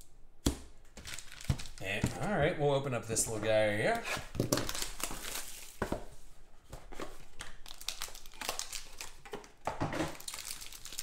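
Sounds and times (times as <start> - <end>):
foil wrapper crinkling: 1.0 - 1.9, 7.4 - 9.3, 10.1 - 11.0.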